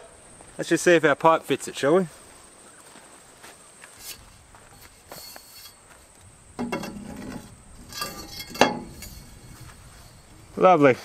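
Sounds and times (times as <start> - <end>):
metal pipe scraping and ringing: 4.0 - 6.0, 6.6 - 10.6
metal clink: 6.6 - 10.3.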